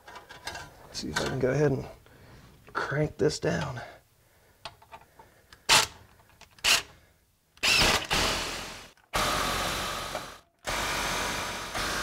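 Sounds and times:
cordless power driver running: 7.6s - 12.0s.

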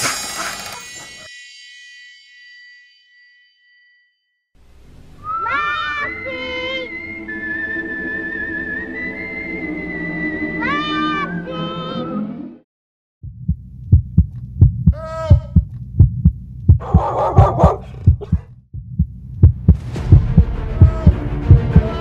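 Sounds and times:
short high cry: 5.2s - 6.9s.

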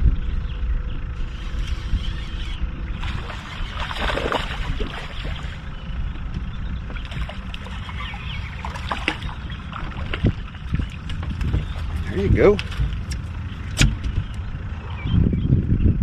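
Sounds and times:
wind rumble: 0.0s - 16.0s
water lapping against boat hull: 1.4s - 15.0s
light clicks and splashes: 6.9s - 14.0s.

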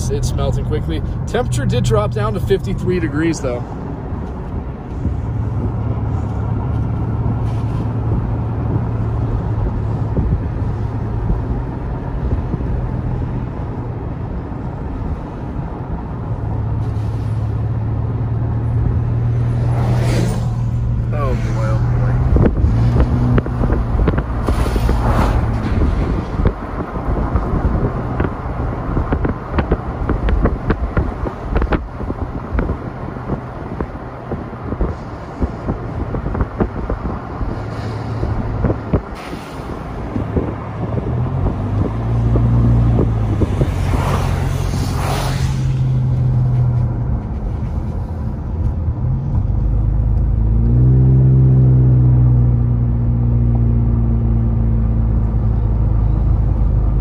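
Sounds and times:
car engine and tyre drone: 0.0s - 57.0s
road knocks and bumps: 22.2s - 51.0s.

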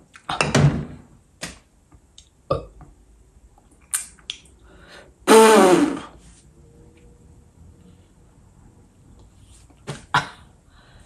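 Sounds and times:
sharp mouth clicks: 3.8s - 4.5s.

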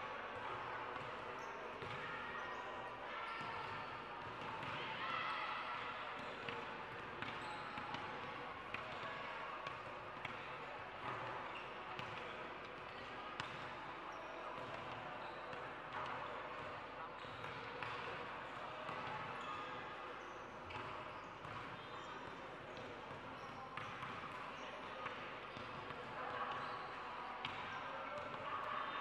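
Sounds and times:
chatter of players and spectators: 0.0s - 29.0s
basketball bouncing on court: 13.4s - 13.6s.

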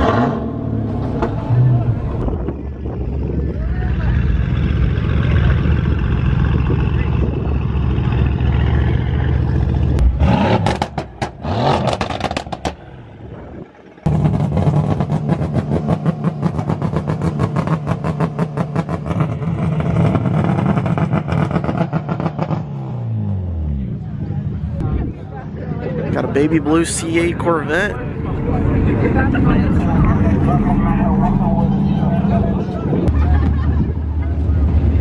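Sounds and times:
loud deep car exhaust: 0.0s - 24.9s
car engine pulsing steadily: 0.0s - 35.0s.

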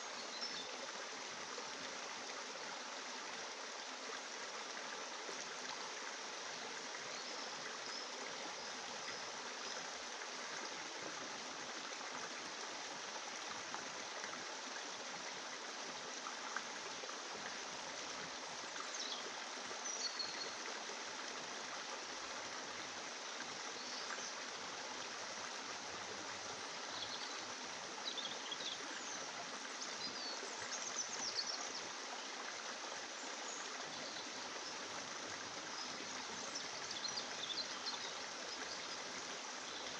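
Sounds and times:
rushing water: 0.0s - 39.9s.

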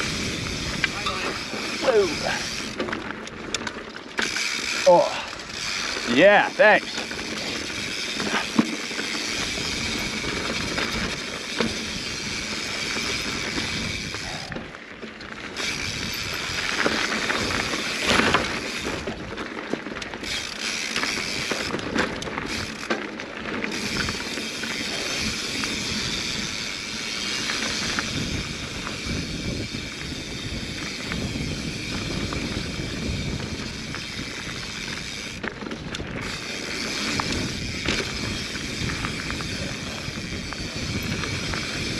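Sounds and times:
wind rushing over microphone: 0.0s - 2.8s, 9.3s - 14.8s, 15.6s - 19.4s, 23.7s - 41.9s
freewheel ticking: 0.0s - 14.5s
bike rattles and knocks: 0.0s - 41.9s
bike tyres on dirt and stones: 0.0s - 41.9s.

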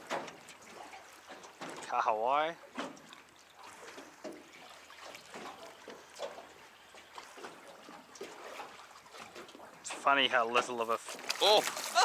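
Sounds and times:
faint ticks and knocks: 0.0s - 1.9s, 2.7s - 3.2s
small waves lapping against boat: 0.0s - 12.0s.

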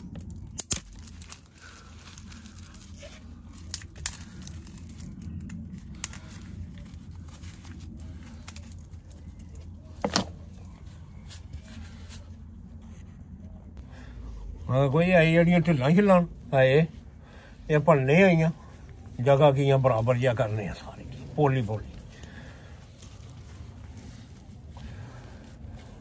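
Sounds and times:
dry twigs snapping: 0.0s - 10.7s, 20.7s - 26.0s
steady low rumble: 0.0s - 26.0s.

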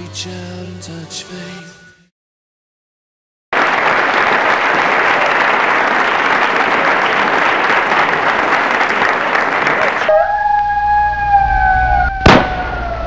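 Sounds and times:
crowd applause: 3.5s - 10.3s.

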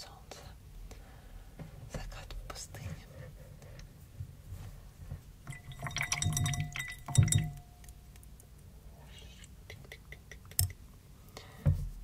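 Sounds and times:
paintbrush clinking in water glass: 5.4s - 8.0s.

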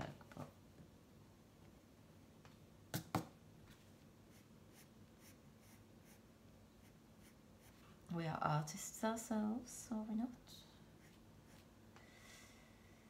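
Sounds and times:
pencil scratching on paper: 4.3s - 7.8s.

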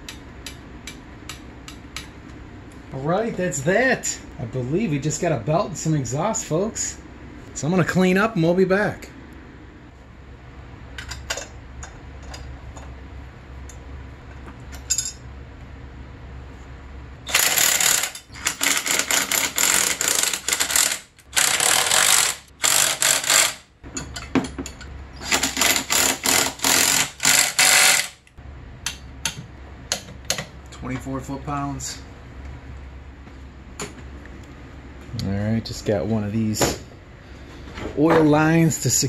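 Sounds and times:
ratchet wrench clicking: 17.3s - 23.6s, 25.2s - 28.3s.

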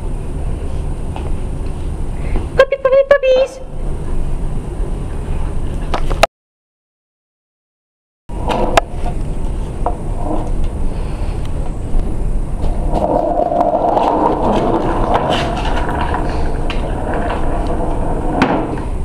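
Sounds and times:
skateboard wheels rolling on floor: 8.3s - 19.0s.

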